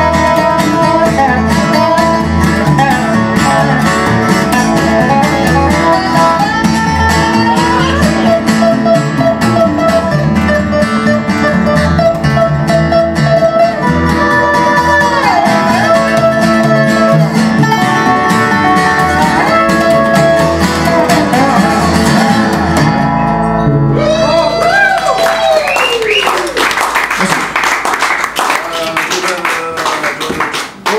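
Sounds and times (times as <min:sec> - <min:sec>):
strummed acoustic guitar: 0:00.0 - 0:24.6
plucked double bass: 0:00.0 - 0:24.8
resonator guitar sliding melody: 0:00.0 - 0:25.4.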